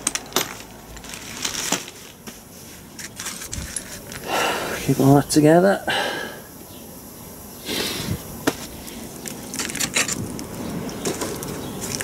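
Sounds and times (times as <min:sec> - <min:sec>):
metal parts clinking: 0:00.0 - 0:02.2, 0:03.0 - 0:04.3, 0:09.2 - 0:12.0.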